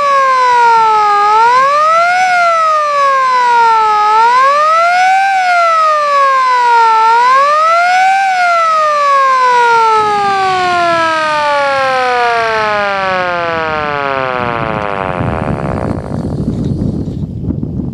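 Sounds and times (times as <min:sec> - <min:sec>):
electric siren wailing: 0:00.0 - 0:16.5.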